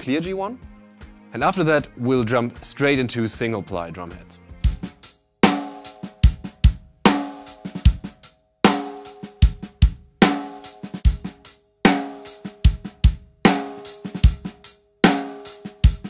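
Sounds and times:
drum kit groove: 0.0s - 16.0s
kick drum and cymbal: 4.5s - 16.0s
ringing snare drum strokes: 4.7s - 16.0s.

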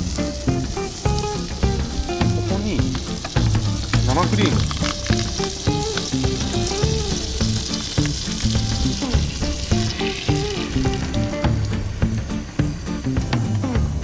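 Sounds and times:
background music: 0.0s - 14.0s
butter sizzling in a pan: 0.0s - 14.0s.

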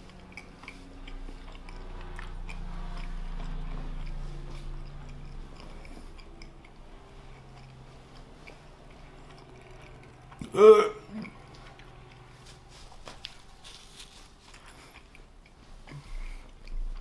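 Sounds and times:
wet mouth clicks: 0.0s - 12.3s
chewing food: 0.0s - 17.0s.

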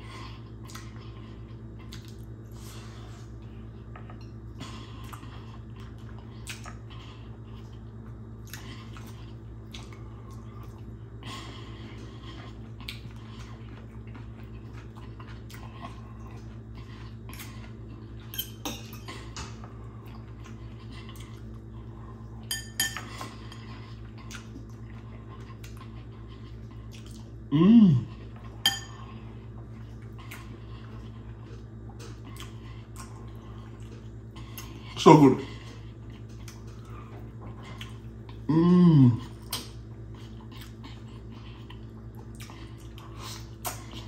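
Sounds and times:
steady low hum: 0.0s - 44.0s
person humming mmm: 27.5s - 28.3s, 38.4s - 39.6s.

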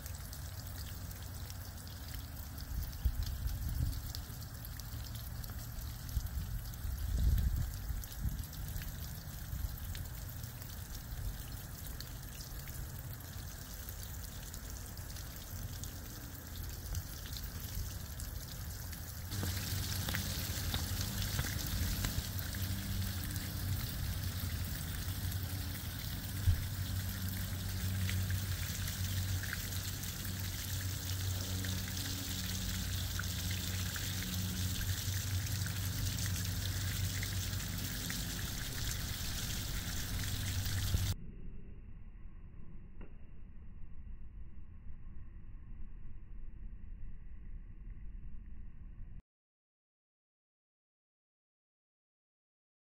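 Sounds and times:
water splashing down rain chain: 0.0s - 41.2s.

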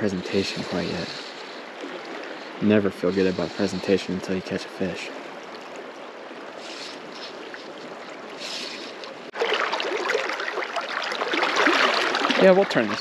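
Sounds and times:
water babbling and splashing: 0.0s - 13.0s.

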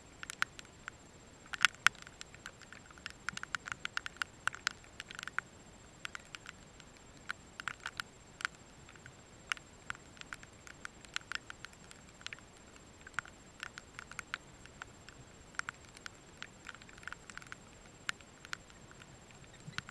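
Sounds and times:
birds chattering with chips: 6.0s - 9.0s, 9.7s - 19.9s.

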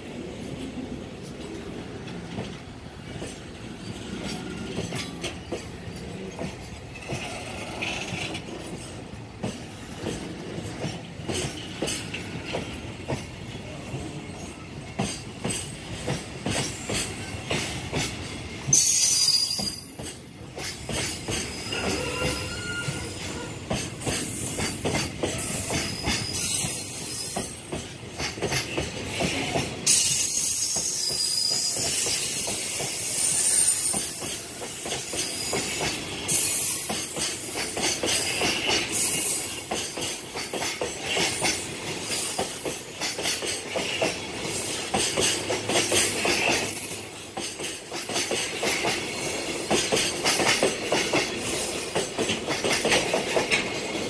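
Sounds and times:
train wheels clattering over rails: 0.0s - 54.0s
high-pitched wheel squeal: 21.4s - 23.5s.

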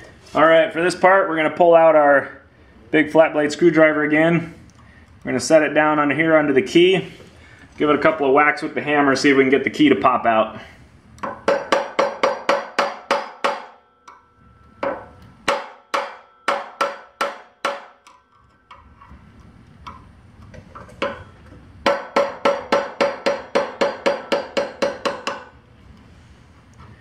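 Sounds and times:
hammer striking metal screwdriver: 11.2s - 19.1s.

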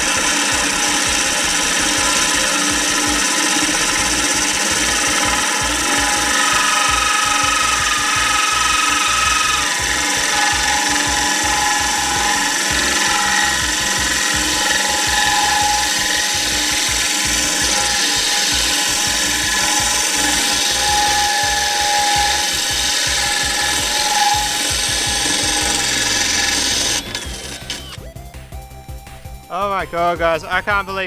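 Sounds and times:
drill grinding through glass: 0.0s - 28.1s.

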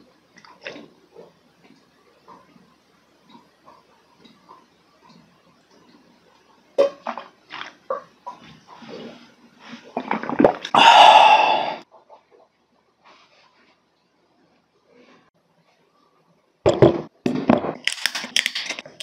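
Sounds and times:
person gulping a drink: 0.4s - 0.9s, 9.9s - 11.8s
breathy voiced exhale: 10.8s - 11.8s.

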